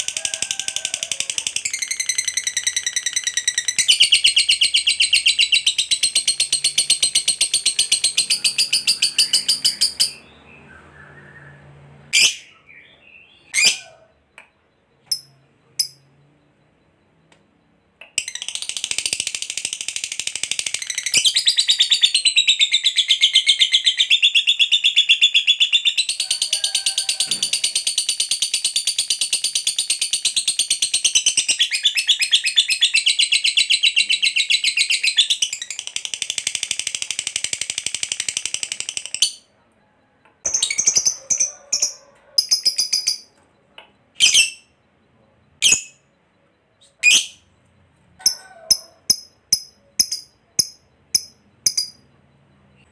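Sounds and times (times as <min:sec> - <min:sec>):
lovebird chattering trill: 0:00.0 - 0:10.4, 0:48.2 - 0:52.1
bird chirps: 0:00.1 - 0:52.9.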